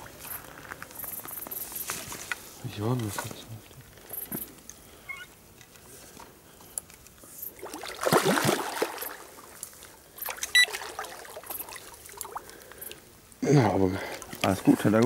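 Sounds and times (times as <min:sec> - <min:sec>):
water splashing and trickling: 0:07.4 - 0:15.0.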